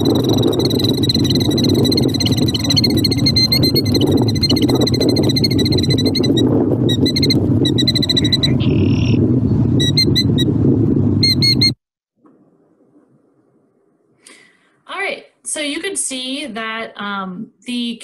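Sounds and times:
bird alarm calls: 0:00.0 - 0:09.2
steady low rumble: 0:00.0 - 0:14.2.

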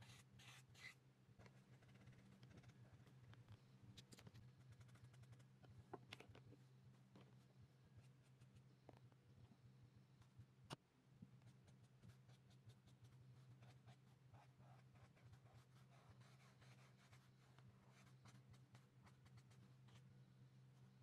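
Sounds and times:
marker scratching on paper: 0:00.0 - 0:01.0, 0:11.7 - 0:20.0.

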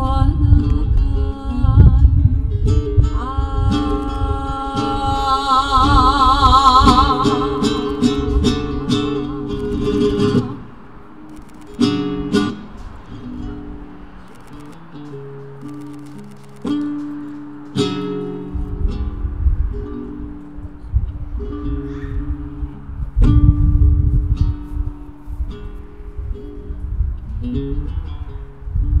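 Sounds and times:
person singing with vibrato: 0:00.0 - 0:10.8
flamenco guitar: 0:00.0 - 0:29.0.

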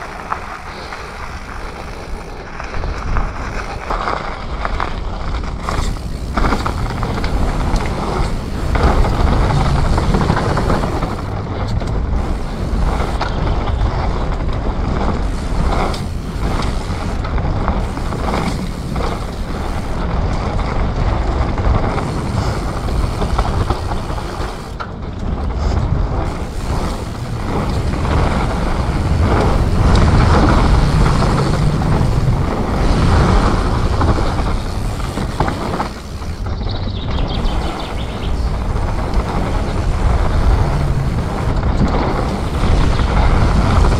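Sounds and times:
bike rattling and knocking: 0:00.0 - 0:43.9
bike tyres rolling on dirt: 0:00.0 - 0:43.9
continuous low rumble: 0:00.0 - 0:43.9.

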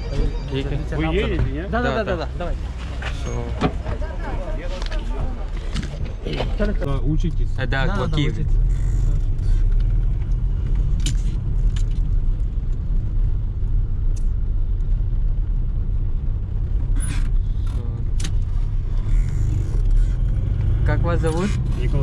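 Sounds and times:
engine and road rumble: 0:00.0 - 0:22.0
sharp clicks and rattles: 0:08.4 - 0:12.9.

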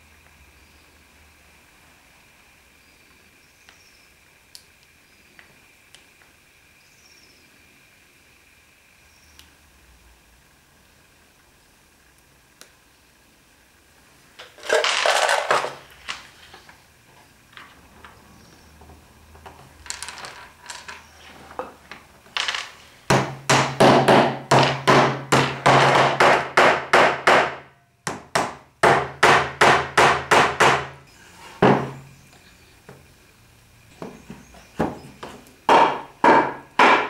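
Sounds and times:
wooden mallet tapping dowels: 0:34.0 - 0:37.0.

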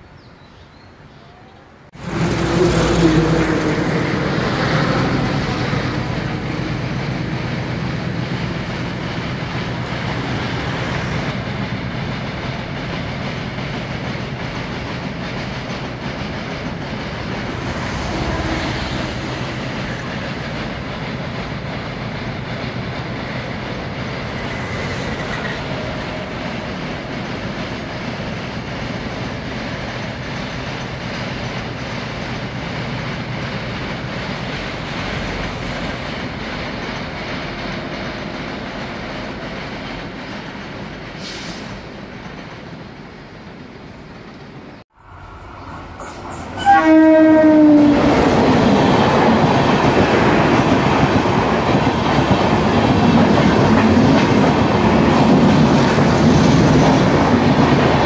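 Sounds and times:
freight train rumbling over bridge: 0:00.0 - 0:58.0.

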